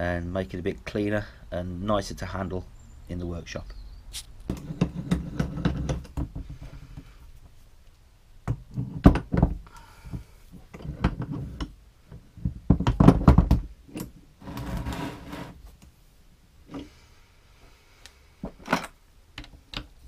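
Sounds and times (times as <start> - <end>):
metal knocks and clunks: 4.5 - 6.8, 8.4 - 9.6, 10.2 - 14.2.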